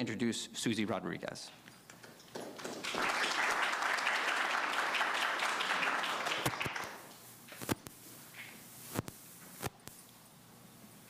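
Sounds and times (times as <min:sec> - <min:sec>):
audience applauding: 0:02.3 - 0:07.1.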